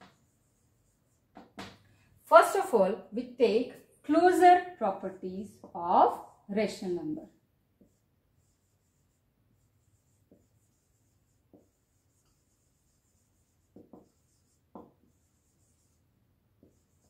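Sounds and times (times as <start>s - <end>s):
marker writing on whiteboard: 0.0s - 1.8s, 7.7s - 17.0s
marker tip tapping board: 1.3s - 1.8s, 10.1s - 10.7s, 11.5s - 12.0s, 13.6s - 15.2s, 16.6s - 17.0s.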